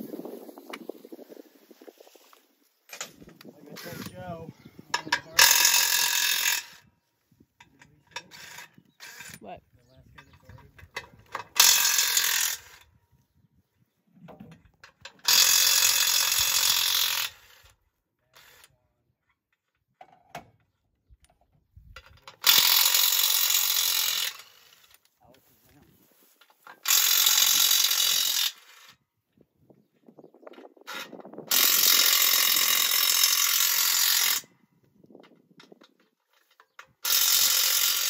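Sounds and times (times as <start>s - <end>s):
ratchet wrench rapid clicking: 5.4s - 6.8s, 11.6s - 12.8s, 15.2s - 17.5s, 22.4s - 24.8s, 26.8s - 28.8s, 30.9s - 34.5s, 37.0s - 38.0s.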